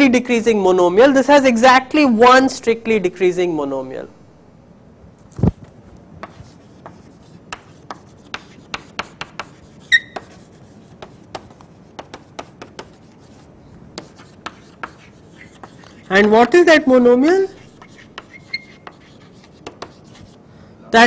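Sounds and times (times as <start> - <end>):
chalk tapping and scraping: 6.2 - 16.6, 17.6 - 20.4
chalk squeak: 8.0 - 10.8, 14.2 - 16.3, 17.6 - 20.3.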